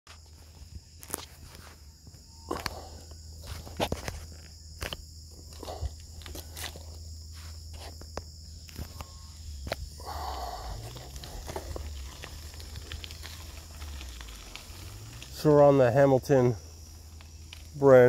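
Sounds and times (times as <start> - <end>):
high insect trill: 0.1 - 18.0
bicycle rolling on wet gravel: 9.9 - 18.0.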